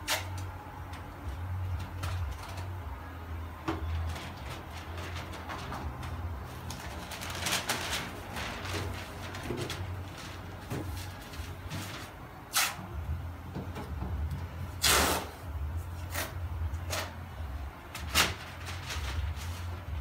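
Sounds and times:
newspaper rustling: 3.7s - 12.4s, 17.9s - 20.0s
masking tape ripping off roll: 12.5s - 12.8s, 14.8s - 15.4s.

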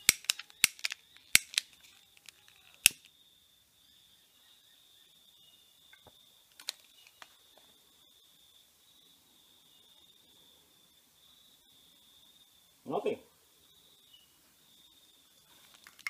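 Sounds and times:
lighter igniter clicking: 0.0s - 1.8s.

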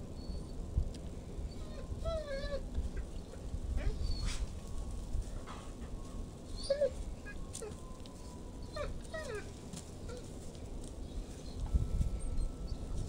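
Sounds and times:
dog whimpering: 1.5s - 4.4s, 6.6s - 7.8s, 8.6s - 9.5s.

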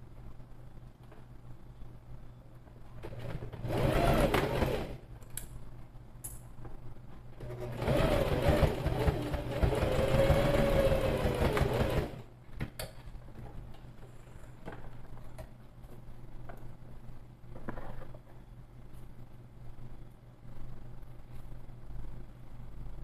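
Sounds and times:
sewing machine stitching: 3.0s - 5.0s, 7.4s - 12.3s.

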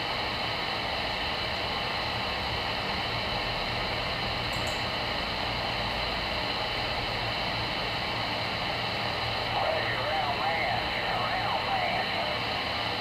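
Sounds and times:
radio static hiss: 7.7s - 13.0s.

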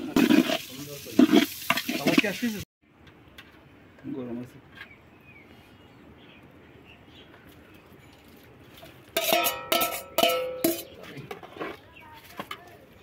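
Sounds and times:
steel bowl clanking on pot: 9.2s - 11.0s.

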